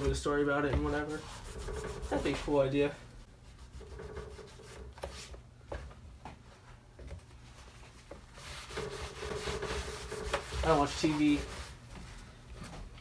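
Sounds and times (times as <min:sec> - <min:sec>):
paper towel wiping vinyl panel: 0:00.0 - 0:05.4, 0:07.5 - 0:11.9.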